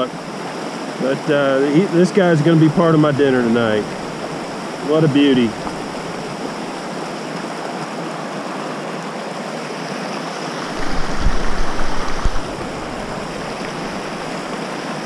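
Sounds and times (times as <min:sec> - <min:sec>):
river rushing over rocks: 0:00.0 - 0:15.0
low rumble on microphone: 0:10.7 - 0:14.5.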